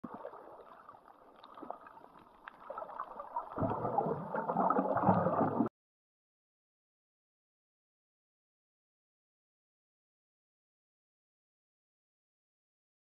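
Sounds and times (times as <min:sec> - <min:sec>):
muffled underwater water noise: 0:00.0 - 0:05.7.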